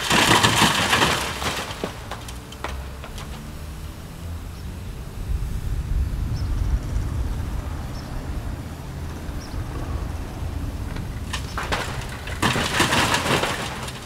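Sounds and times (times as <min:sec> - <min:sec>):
bricks crashing down: 0:00.0 - 0:03.6, 0:10.8 - 0:14.0
sharp cracks: 0:00.0 - 0:03.9, 0:10.7 - 0:14.0
heavy machinery rumble: 0:00.0 - 0:14.0.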